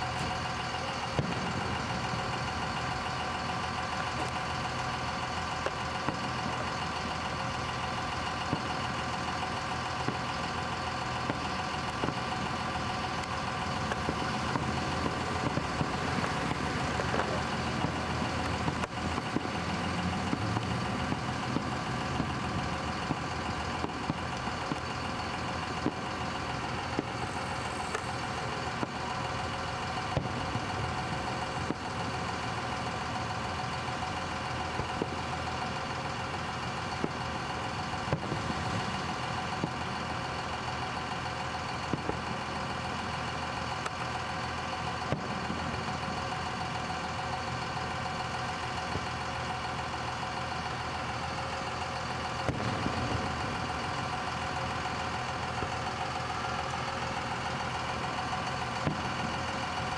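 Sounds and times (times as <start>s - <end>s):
engine idling drone: 0.0s - 59.9s
distant fireworks thumps: 13.2s - 29.2s, 52.4s - 53.6s.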